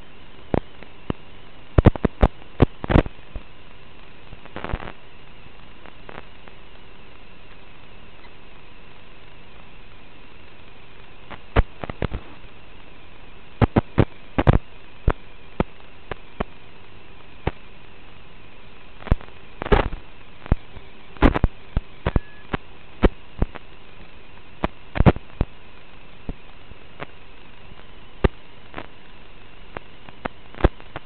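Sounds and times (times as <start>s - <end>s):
faint steady hum: 0.0s - 31.0s
steady audio hiss: 0.0s - 31.0s
sharp clicks and pops: 1.8s - 3.5s, 4.3s - 5.0s, 11.3s - 12.4s, 13.6s - 16.5s, 19.0s - 23.7s, 24.6s - 25.6s, 27.8s - 29.0s, 29.7s - 31.0s
loud crackles: 4.2s - 5.0s, 11.3s - 12.6s, 13.6s - 16.6s, 19.0s - 31.0s.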